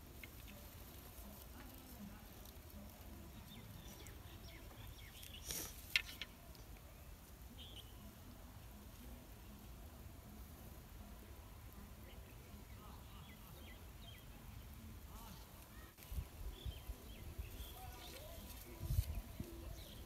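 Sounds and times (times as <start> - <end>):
brief rustle: 5.2 - 6.4.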